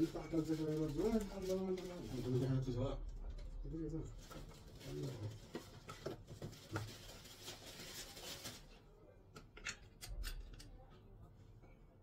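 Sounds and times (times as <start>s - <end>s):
plastic wrapping rustling: 0.0s - 9.0s.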